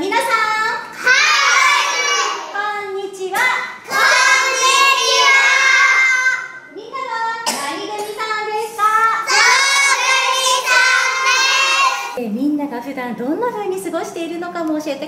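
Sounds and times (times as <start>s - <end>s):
children singing together: 1.0s - 2.5s, 3.8s - 6.6s, 9.2s - 12.2s.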